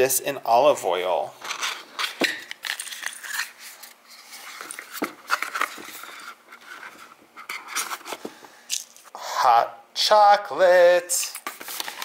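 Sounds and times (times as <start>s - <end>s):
cardboard scraping and crinkling: 3.7s - 8.4s.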